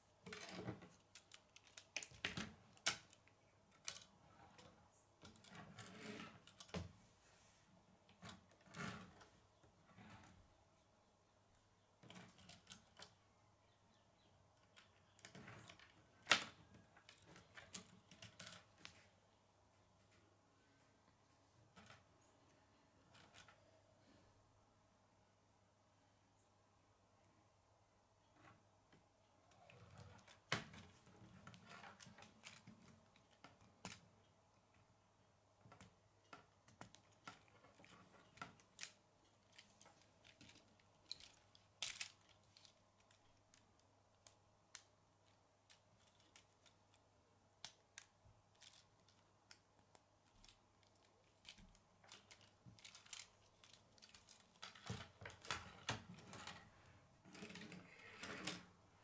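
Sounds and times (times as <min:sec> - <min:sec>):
plastic pieces clicking: 0:00.2 - 0:05.6, 0:35.7 - 0:47.0, 0:47.6 - 0:56.6.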